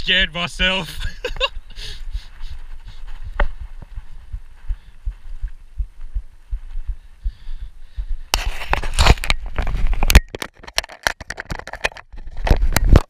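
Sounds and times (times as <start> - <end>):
hand scraping camera: 8.3 - 13.0.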